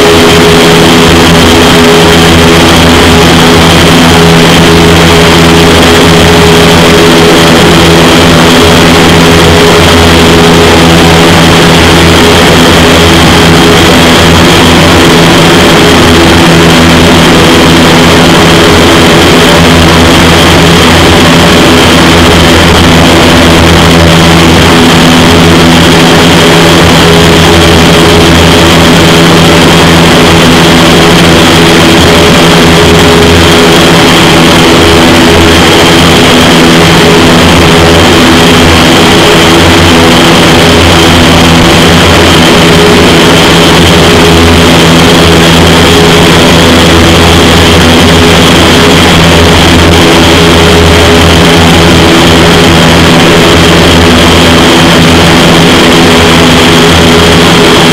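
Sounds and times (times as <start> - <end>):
fan hum: 0.0 - 57.9
loud rush of air: 0.0 - 57.9.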